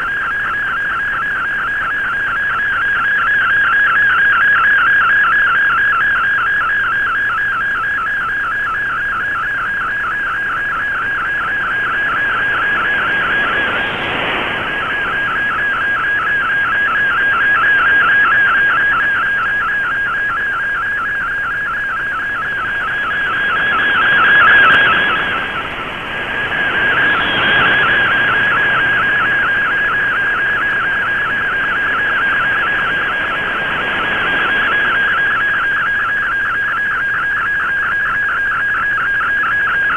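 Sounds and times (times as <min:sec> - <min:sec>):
warbling data tone: 0:09.4 - 0:39.9
radio static: 0:10.8 - 0:36.1.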